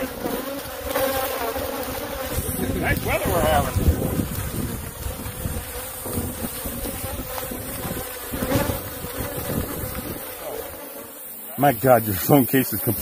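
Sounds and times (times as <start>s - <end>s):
bees buzzing: 0.0s - 13.0s
wind on microphone: 2.2s - 10.3s.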